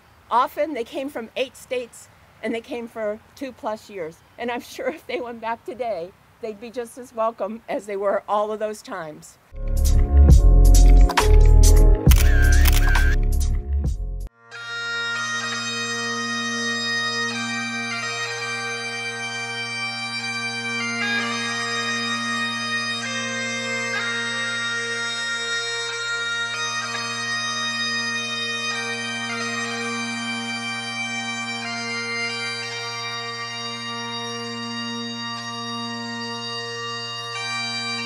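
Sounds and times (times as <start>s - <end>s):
bagpipes playing slow melody: 14.2s - 38.0s.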